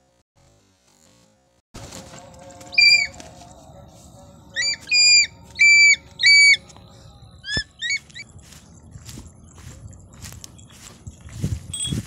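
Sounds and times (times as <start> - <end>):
bird of prey piercing whistled calls: 2.7 - 3.2, 4.6 - 6.6, 7.4 - 8.2.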